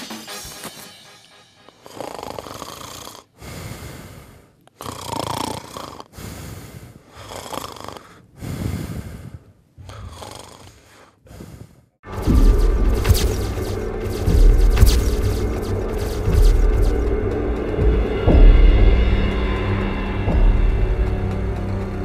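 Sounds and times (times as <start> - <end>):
man snoring: 1.8 - 11.8.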